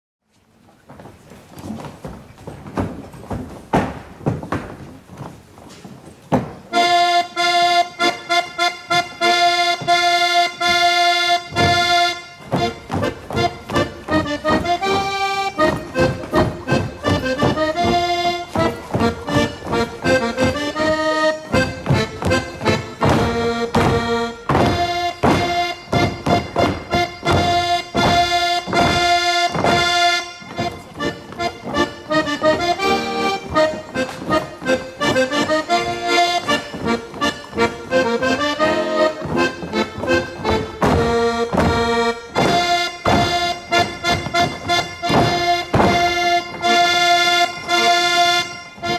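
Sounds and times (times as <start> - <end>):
accordion playing a waltz: 6.6 - 48.9.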